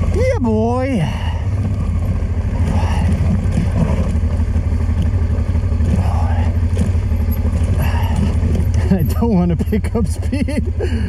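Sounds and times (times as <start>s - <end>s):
motorcycle engine at low revs: 0.0s - 11.0s.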